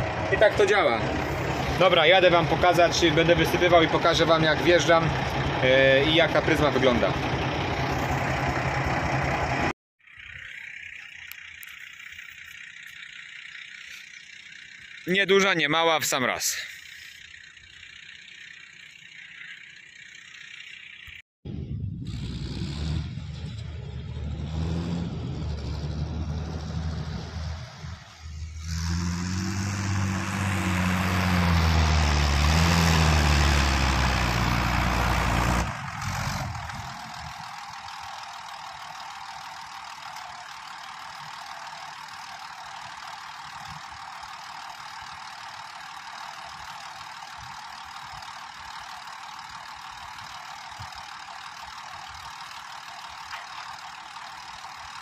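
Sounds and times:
tractor idling with knock: 0:00.0 - 0:21.2, 0:29.2 - 0:55.0
tractor engine revving under load: 0:22.0 - 0:55.0.

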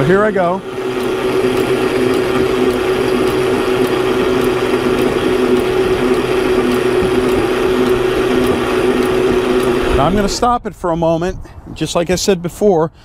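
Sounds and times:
anchor windlass humming: 0:00.6 - 0:12.0
faint regular ticking: 0:00.9 - 0:10.4.

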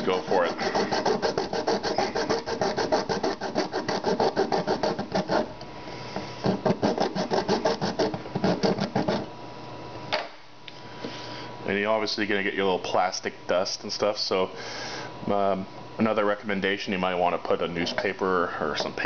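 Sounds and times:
hacksaw cutting plastic: 0:00.0 - 0:05.5, 0:06.4 - 0:09.3.

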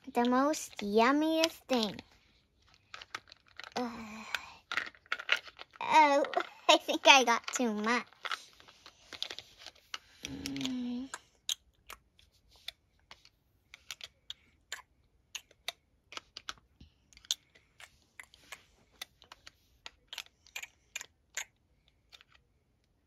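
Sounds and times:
toy spoon clicking on plastic: 0:10.2 - 0:22.4.

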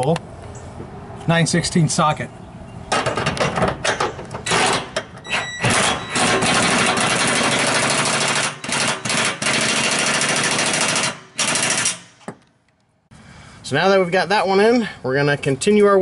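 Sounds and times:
impact driver hammering: 0:03.0 - 0:12.5.

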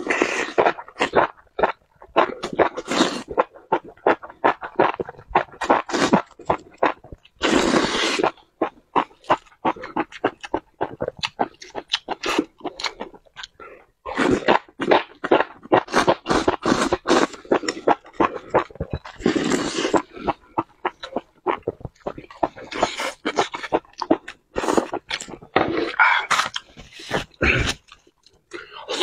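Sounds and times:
slurping: 0:00.0 - 0:29.0
wet chewing with lip smacks: 0:08.2 - 0:13.6, 0:14.2 - 0:29.0.

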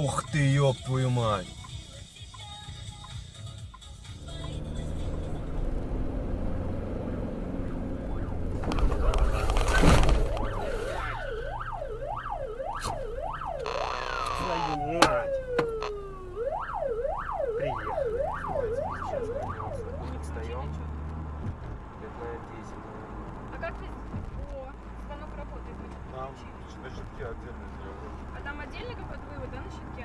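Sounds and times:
road noise: 0:00.0 - 0:30.0
electronic siren yelping: 0:07.0 - 0:09.2, 0:10.1 - 0:20.2.

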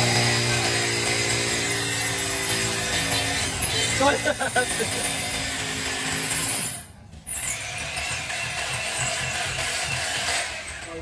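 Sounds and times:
power tool grinding: 0:00.0 - 0:11.0.

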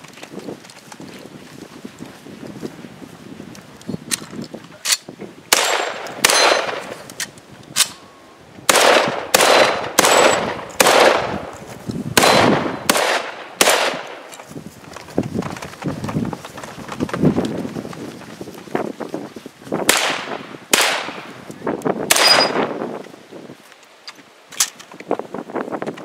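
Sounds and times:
rifle shots with echo: 0:05.5 - 0:07.1, 0:08.7 - 0:11.5, 0:12.2 - 0:14.3, 0:19.9 - 0:21.3, 0:22.1 - 0:22.7.

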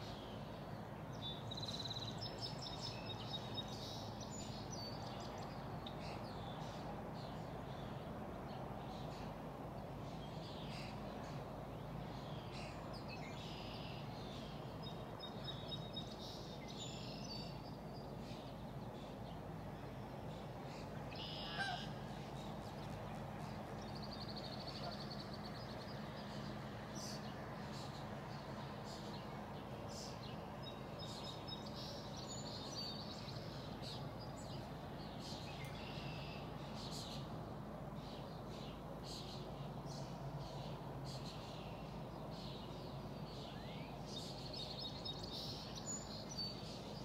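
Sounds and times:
low background hum: 0:00.0 - 0:47.0
birds chirping: 0:10.0 - 0:37.4.

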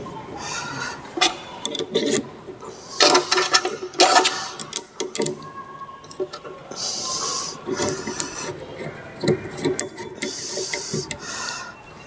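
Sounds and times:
steel parts clinking and rattling: 0:03.0 - 0:05.4, 0:07.7 - 0:11.2.

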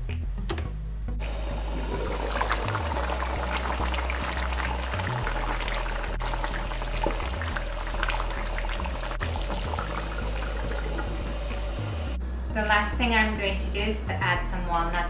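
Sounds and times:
background music: 0:00.0 - 0:15.0
curry bubbling in a skillet: 0:01.7 - 0:11.8.

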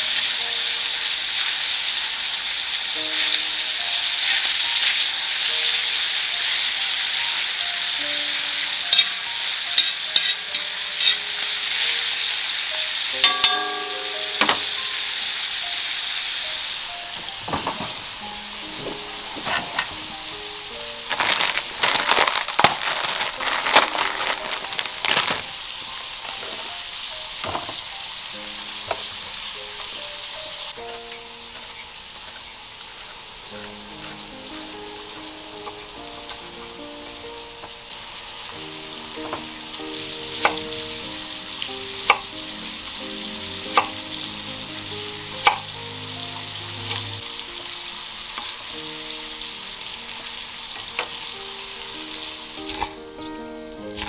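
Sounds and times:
faint piano music: 0:00.0 - 0:54.0
meat sizzling on griddle: 0:00.0 - 0:54.0.

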